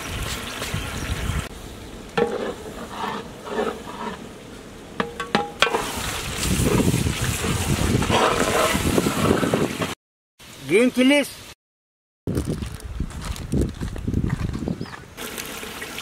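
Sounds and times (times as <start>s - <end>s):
sizzling: 0.0s - 10.0s
ladle stirring in metal pot: 2.2s - 4.3s
ladle knocking against pot: 5.0s - 5.8s.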